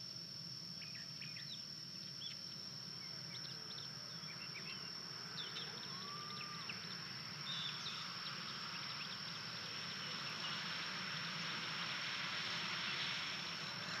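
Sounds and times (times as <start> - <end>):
steady high-pitched hum: 0.0 - 14.0
hiss: 6.0 - 14.0.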